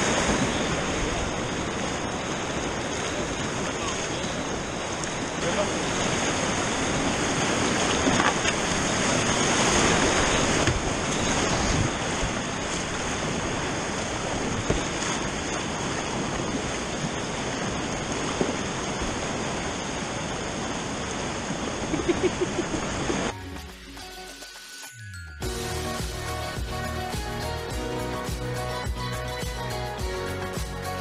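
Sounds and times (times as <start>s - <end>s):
sharp water splashes: 0.0s - 20.6s
whitewater rapids rushing: 0.0s - 24.0s, 25.4s - 31.0s.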